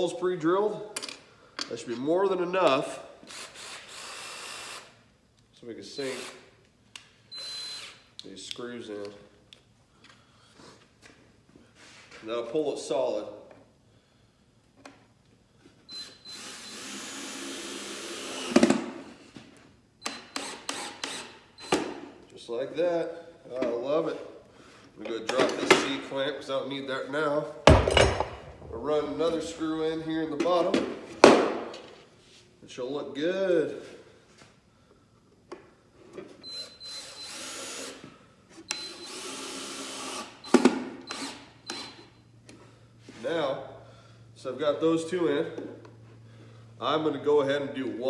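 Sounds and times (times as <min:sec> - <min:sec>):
power drill driving screw: 0:03.2 - 0:05.0, 0:06.0 - 0:06.4, 0:07.3 - 0:08.0, 0:15.9 - 0:18.9, 0:20.0 - 0:22.0, 0:36.4 - 0:38.0, 0:38.7 - 0:42.1
sharp knocks: 0:27.7 - 0:29.0.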